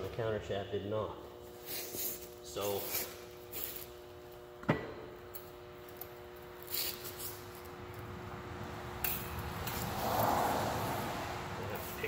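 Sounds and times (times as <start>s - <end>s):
metal parts scraping and rustling: 6.6s - 7.7s.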